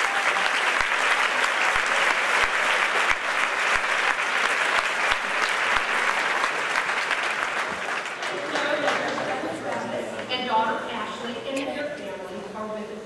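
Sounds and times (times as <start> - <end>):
audience applauding: 0.0 - 10.1.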